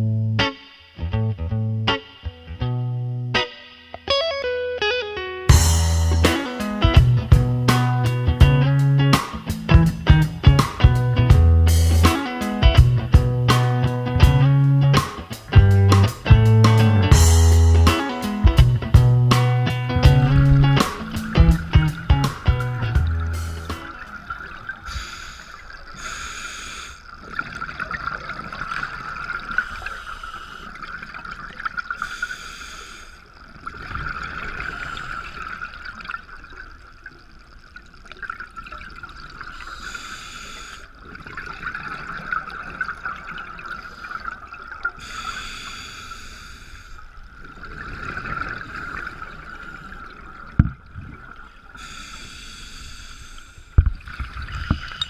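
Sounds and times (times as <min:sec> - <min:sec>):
exhaled air bubbling: 0:06.6 - 0:55.0
regulator hiss underwater: 0:14.9 - 0:27.3, 0:29.2 - 0:31.1, 0:31.9 - 0:36.1, 0:39.3 - 0:41.2, 0:43.6 - 0:50.6, 0:51.6 - 0:54.0
high-pitched hum: 0:16.0 - 0:24.2.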